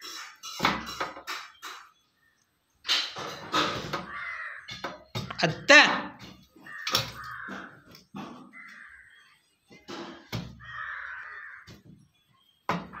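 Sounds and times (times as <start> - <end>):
sharp knocks: 2.8 - 8.5
crow cawing: 3.9 - 5.1, 6.5 - 9.4, 10.4 - 11.9.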